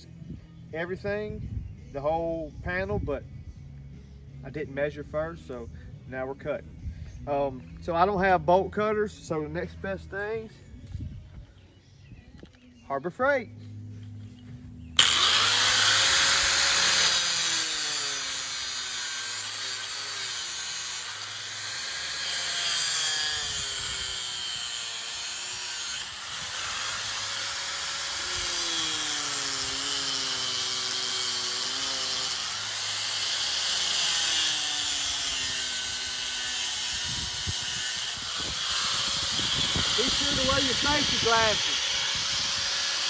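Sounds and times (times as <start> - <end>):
angle grinder cutting steel wire: 15.0 - 43.0.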